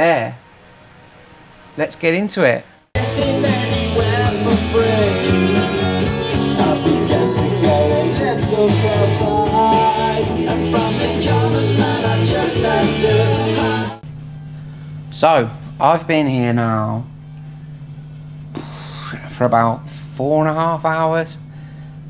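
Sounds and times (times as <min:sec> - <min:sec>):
rock song: 0:03.0 - 0:14.0.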